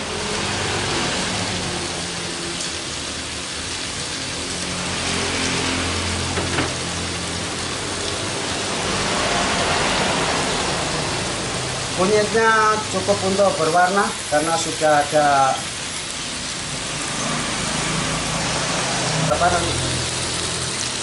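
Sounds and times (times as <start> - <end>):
steady hissing noise: 6.2 - 21.0.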